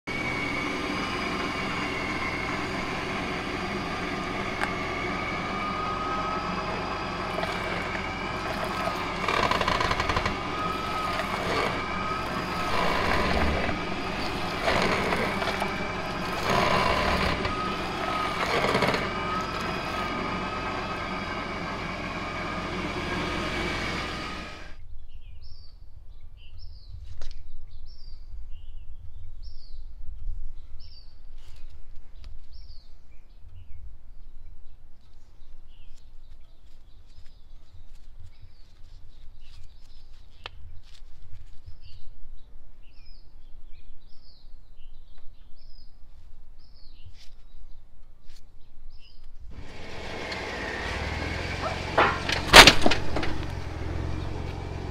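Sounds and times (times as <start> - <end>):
off-road vehicle running: 0.0 - 24.8, 49.5 - 54.9
tyre squealing on concrete: 0.1 - 24.8.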